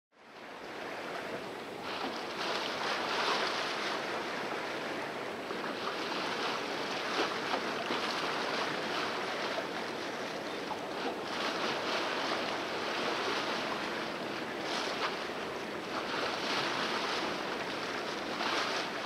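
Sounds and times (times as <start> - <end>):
wind over deck: 0.2 - 19.0
water splashing along boat hull: 0.4 - 19.0.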